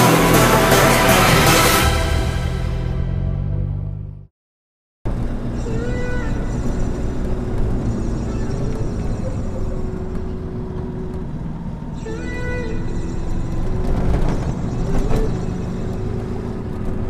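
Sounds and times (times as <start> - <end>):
car engine running: 0.0 - 4.3, 5.1 - 17.0
road noise: 0.0 - 4.3, 5.1 - 17.0
whining tone bending in pitch: 5.3 - 17.0.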